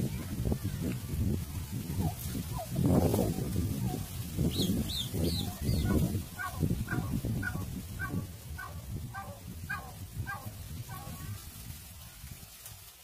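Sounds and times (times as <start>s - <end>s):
turkey chirping: 4.5s - 11.1s
turkey yelping: 5.4s - 11.2s.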